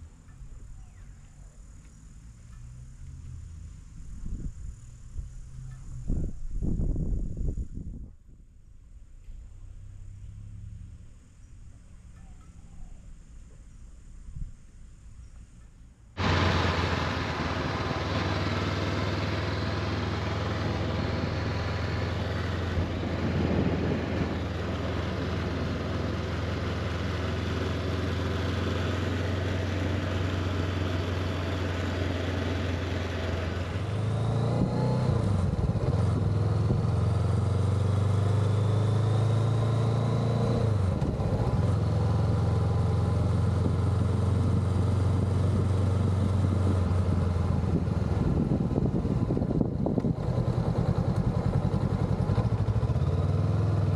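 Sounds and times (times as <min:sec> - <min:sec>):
wind noise: 0:03.8 - 0:09.5, 0:20.6 - 0:25.9, 0:43.6 - 0:52.1
motorcycle engine running: 0:16.2 - 0:53.9.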